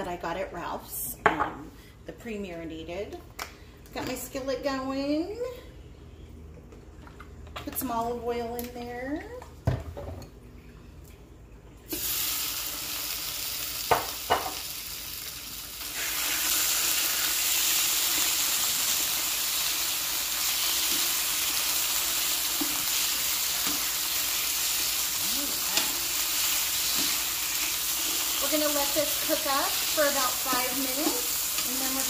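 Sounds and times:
chicken sizzling in oil: 0:11.9 - 0:32.0.

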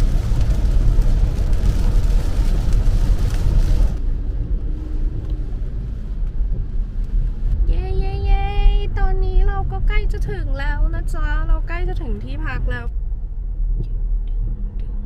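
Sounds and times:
rain and tyre spray hiss: 0:00.0 - 0:07.8
car road rumble: 0:00.0 - 0:15.0.

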